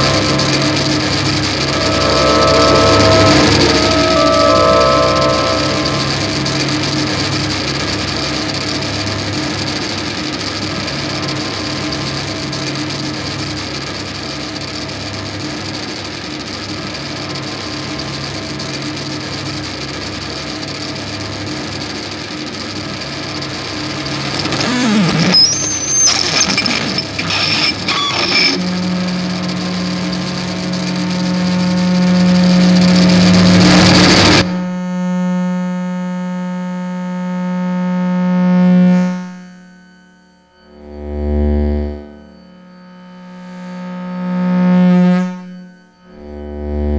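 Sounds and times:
sliding pitches and crackles: 0.0s - 7.4s
sustained feedback tones: 0.0s - 14.9s, 16.4s - 35.3s, 37.0s - 46.9s
low steady drone: 0.0s - 35.4s, 37.6s - 46.9s
dense buzzing noise: 0.0s - 46.9s.

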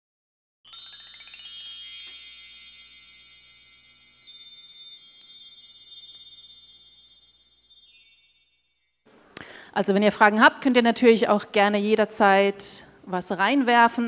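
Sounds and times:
bright chime strikes: 0.7s - 8.9s.

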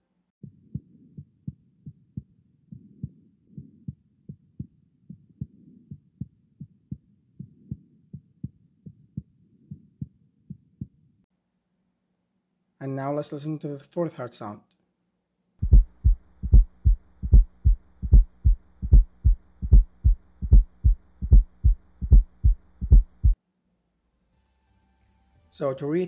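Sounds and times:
heartbeat with gallop rhythm: 0.4s - 11.0s, 15.6s - 23.4s.

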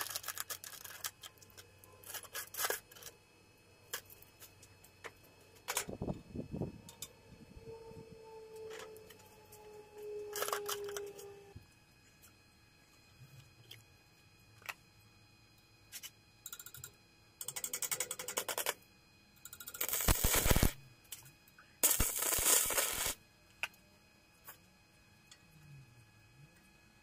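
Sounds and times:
crackling welding arc: 0.0s - 3.2s, 10.3s - 11.5s, 17.4s - 18.8s, 19.4s - 23.2s.

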